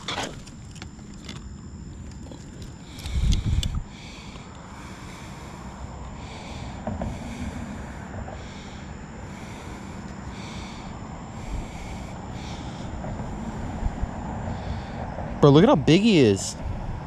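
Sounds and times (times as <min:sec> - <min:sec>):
high chirring insect chorus: 0:00.0 - 0:17.0
wind rumbling on microphone: 0:02.6 - 0:04.2, 0:11.0 - 0:15.9, 0:16.5 - 0:17.0.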